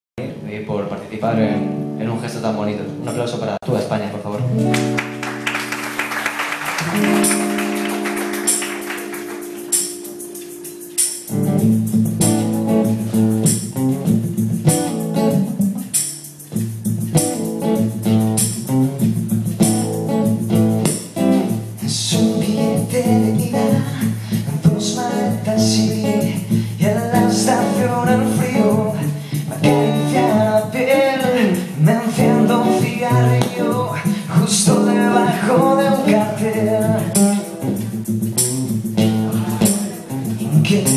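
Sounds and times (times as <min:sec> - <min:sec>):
acoustic guitar strumming: 0:04.4 - 0:40.9
person singing: 0:21.8 - 0:37.5, 0:39.0 - 0:40.9.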